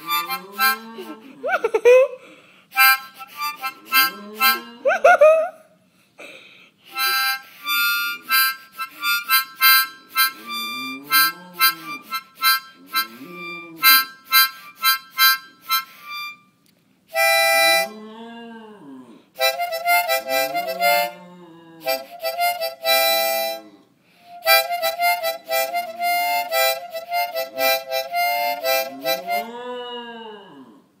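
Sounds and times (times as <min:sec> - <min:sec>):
harmonica quick notes: 0:00.0 - 0:01.3, 0:02.7 - 0:04.7, 0:06.8 - 0:17.9, 0:19.4 - 0:21.2, 0:21.8 - 0:29.5.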